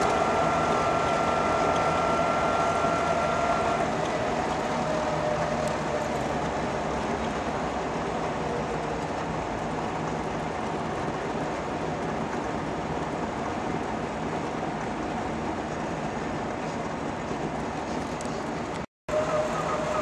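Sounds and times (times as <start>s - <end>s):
two-stroke car engine running: 0.0s - 7.4s
road noise rushing: 0.0s - 20.0s.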